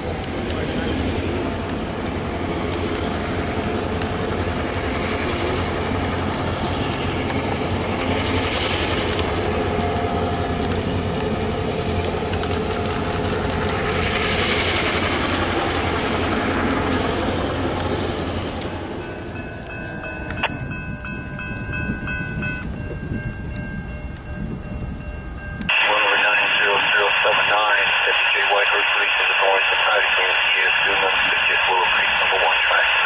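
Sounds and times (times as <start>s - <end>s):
high hiss of passing train: 0.0s - 19.6s
diesel locomotives running: 0.0s - 33.0s.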